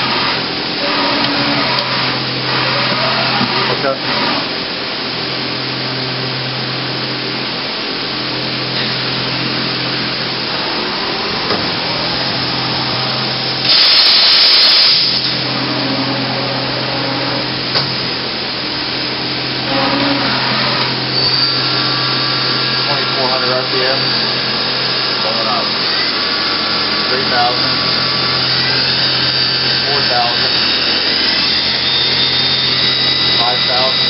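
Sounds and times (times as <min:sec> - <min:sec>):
machine hum: 0:00.0 - 0:34.0
steel covers sliding and rubbing: 0:19.6 - 0:21.0.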